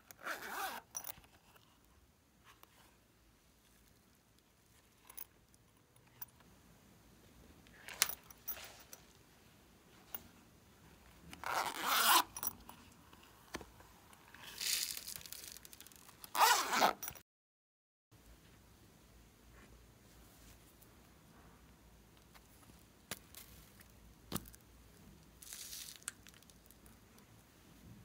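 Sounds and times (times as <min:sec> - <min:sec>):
zipper being pulled: 0:00.1 - 0:01.2, 0:11.3 - 0:12.6, 0:16.2 - 0:17.2.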